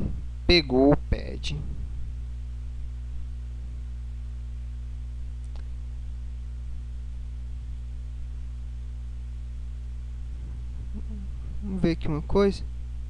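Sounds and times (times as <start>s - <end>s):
low electrical hum: 0.0s - 13.0s
faint click: 5.4s - 5.7s.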